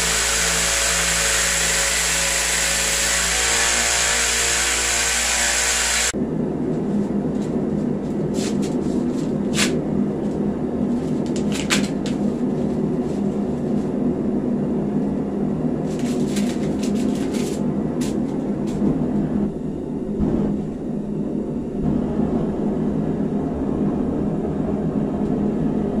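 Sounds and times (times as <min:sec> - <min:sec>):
belt grinder running: 0:00.0 - 0:06.2.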